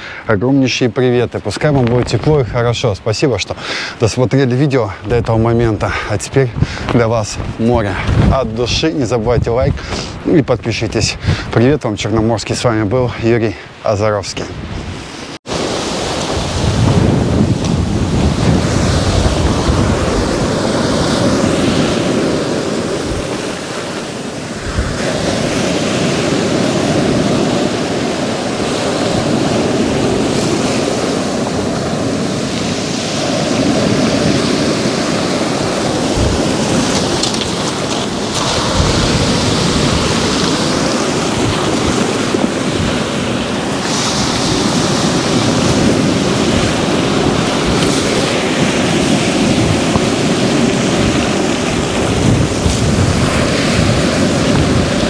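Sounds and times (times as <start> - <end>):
wind buffeting microphone: 4.4 - 13.2, 14.4 - 55.0
surf breaking on pebble beach: 15.5 - 55.0.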